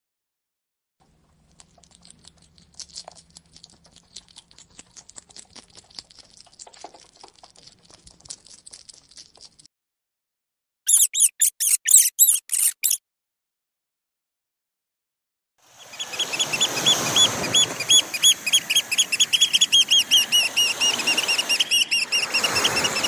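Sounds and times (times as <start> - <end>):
animal chewing grass: 1.0 - 9.7
high squeaky calls: 10.9 - 13.0, 15.8 - 23.0.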